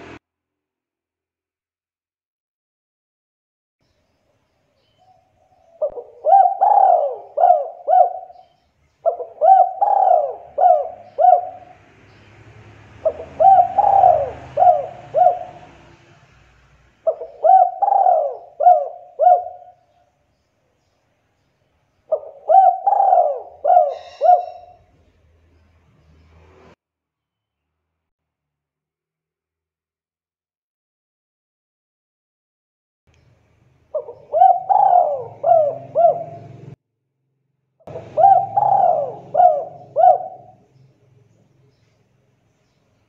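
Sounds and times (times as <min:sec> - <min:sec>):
dove cooing: 0:05.5 - 0:11.8, 0:13.0 - 0:16.0, 0:17.0 - 0:19.9, 0:22.1 - 0:24.9, 0:33.9 - 0:36.8, 0:37.9 - 0:40.6.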